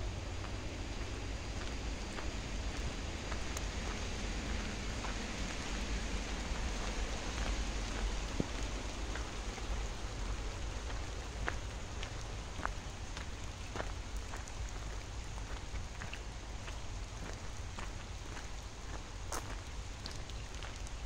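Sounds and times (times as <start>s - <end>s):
rain hissing on foliage: 0.0s - 21.0s.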